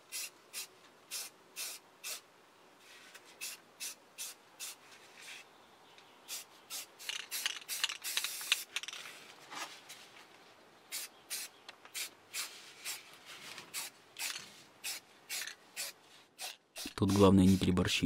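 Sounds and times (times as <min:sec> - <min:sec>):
aerosol spray can hissing: 0:00.1 - 0:02.2, 0:03.4 - 0:04.8, 0:10.9 - 0:13.0, 0:13.7 - 0:18.0.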